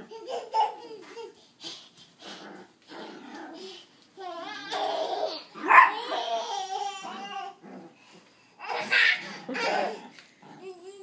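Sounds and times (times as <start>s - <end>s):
toddler laughing: 0.0s - 2.0s, 8.6s - 11.0s.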